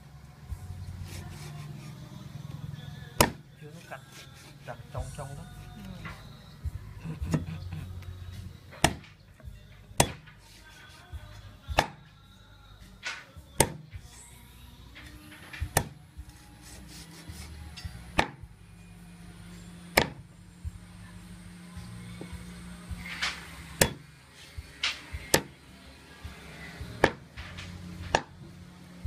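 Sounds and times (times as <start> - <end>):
cleaver chopping on wooden block: 3.2 - 3.4, 8.8 - 9.2, 10.0 - 11.0, 11.8 - 12.0, 13.6 - 13.9, 15.7 - 16.0, 18.2 - 18.4, 19.9 - 20.2, 23.8 - 24.0, 25.3 - 25.5, 27.0 - 27.3, 28.1 - 28.4.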